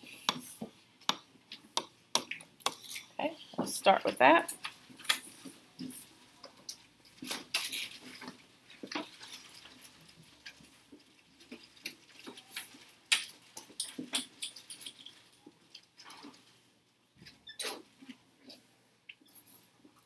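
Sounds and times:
clicks and taps: 0.2 - 2.8.

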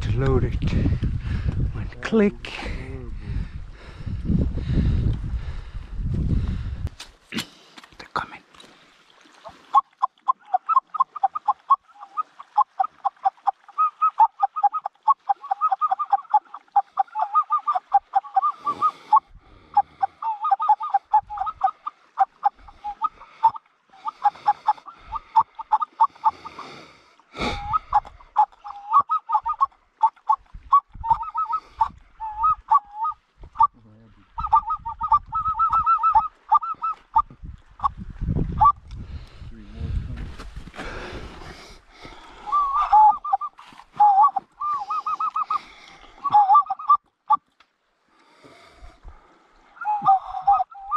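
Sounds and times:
geese honking: 9.7 - 26.7, 31.0 - 33.7, 34.3 - 37.2.

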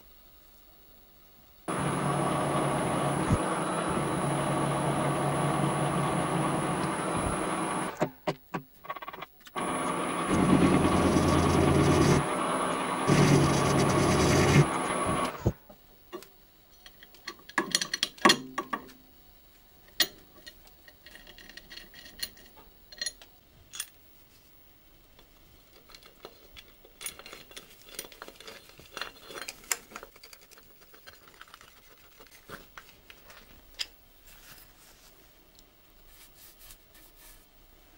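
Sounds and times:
lathe cutting metal: 1.7 - 8.0, 9.6 - 15.4.

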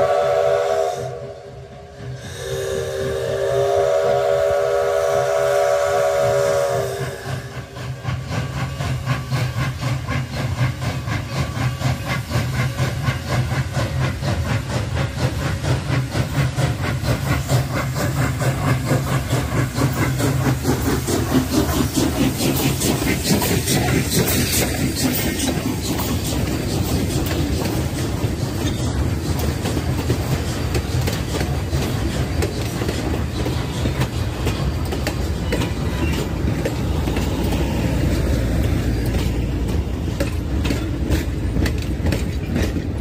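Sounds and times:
steam whistle blast: 0.0 - 7.7
train coaches clattering past: 0.0 - 43.0.

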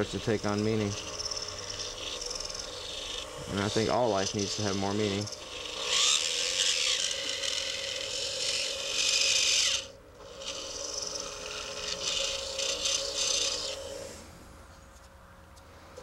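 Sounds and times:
drill grinding into acrylic: 0.0 - 14.2
rotary drill motor whine: 0.0 - 14.4.

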